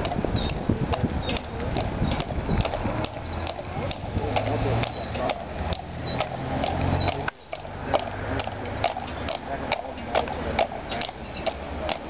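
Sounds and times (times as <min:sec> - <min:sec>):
horse hooves clip-clopping on road: 0:00.0 - 0:12.0.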